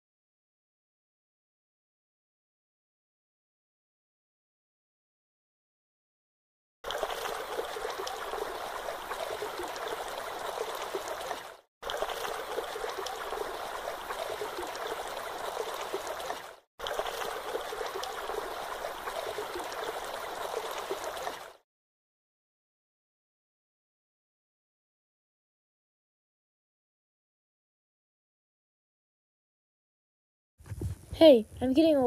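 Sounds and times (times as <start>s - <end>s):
babbling stream: 6.9s - 21.6s.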